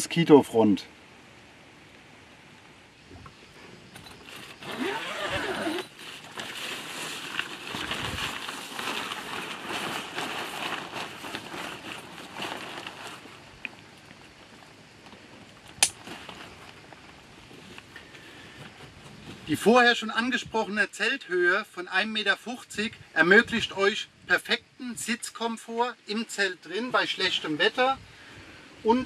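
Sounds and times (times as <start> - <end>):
zipper unzipping: 4.2 - 6.5
plastic sheet crinkling: 4.2 - 13.5, 15.9 - 17.0.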